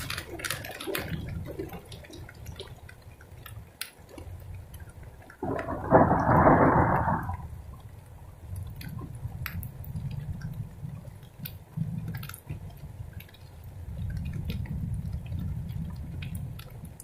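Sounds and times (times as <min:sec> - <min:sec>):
raindrops ticking: 0:00.0 - 0:17.0
low rumble: 0:05.4 - 0:07.7.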